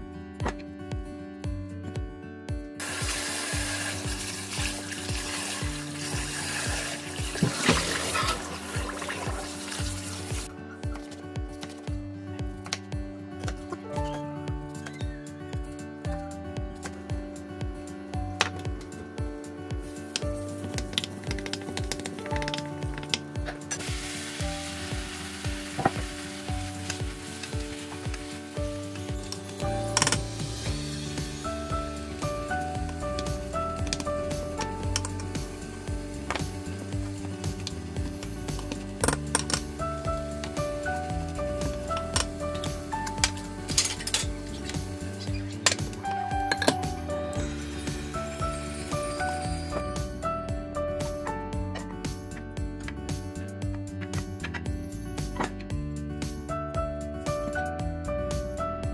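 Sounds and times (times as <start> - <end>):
food sizzling in a pan: 2.8 - 7.6, 8.2 - 10.5, 23.8 - 33.6, 35.2 - 39.0, 47.4 - 49.8
music with steady beat: 8.8 - 58.9.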